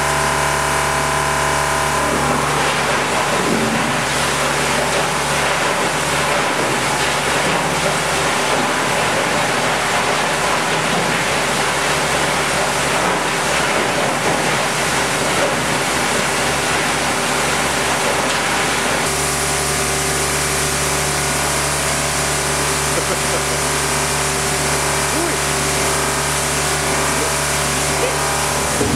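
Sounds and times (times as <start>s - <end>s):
machine hum with tones: 0.0s - 8.8s, 15.6s - 28.9s
plastic granulator grinding: 0.0s - 28.9s.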